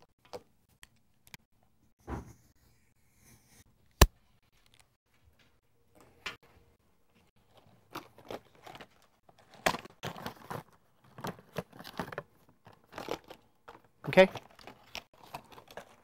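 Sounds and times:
clicks and rustles from handling: 7.2s - 16.0s.

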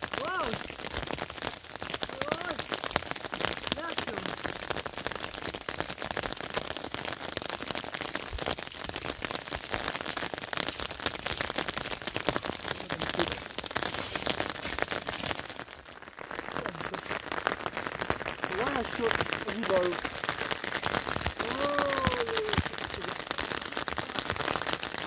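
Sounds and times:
rain pattering: 0.0s - 25.0s.

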